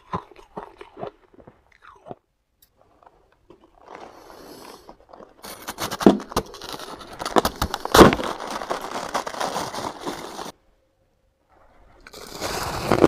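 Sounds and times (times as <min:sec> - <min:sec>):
ice crunching: 0:02.8 - 0:10.6, 0:12.0 - 0:13.0.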